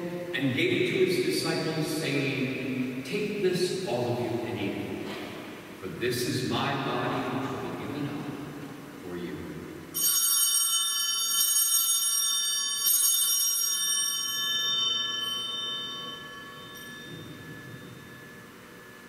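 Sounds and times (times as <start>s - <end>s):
altar bell ringing: 9.9s - 19.0s.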